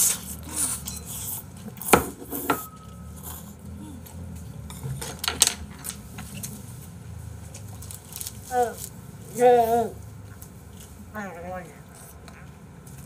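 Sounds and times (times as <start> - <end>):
utensils clinking against dishes: 0.0 - 3.5.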